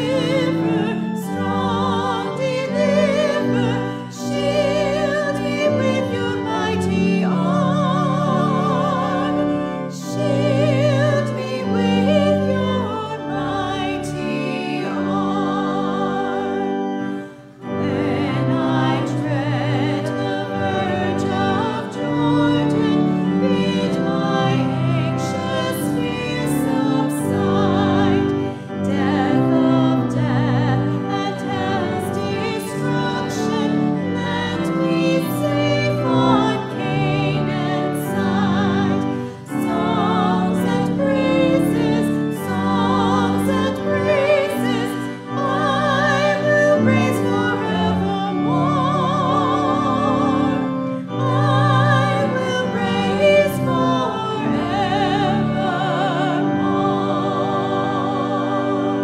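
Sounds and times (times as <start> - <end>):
women singing a hymn: 0.0 - 59.0.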